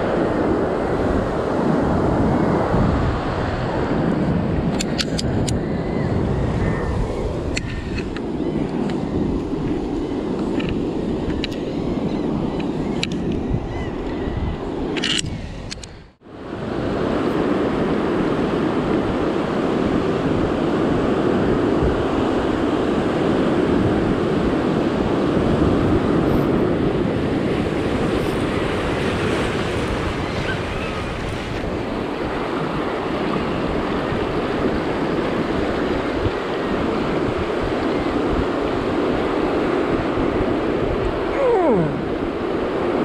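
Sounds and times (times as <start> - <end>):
wind buffeting microphone: 0.0 - 43.0
ocean surf breaking over rocks: 16.1 - 43.0.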